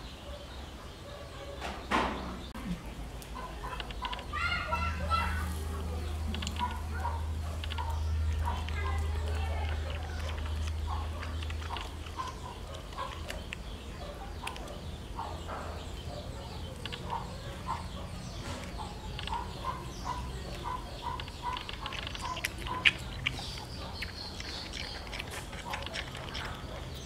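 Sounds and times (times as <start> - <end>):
faint clicks: 16.7 - 17.3.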